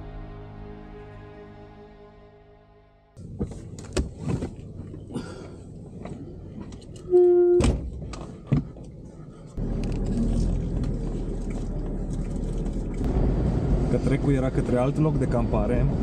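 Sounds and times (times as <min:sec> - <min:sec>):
low engine rumble: 0:03.2 - 0:16.0.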